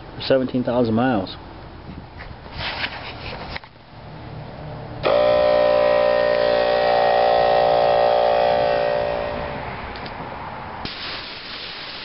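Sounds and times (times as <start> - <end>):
air compressor humming: 5.0 - 9.7.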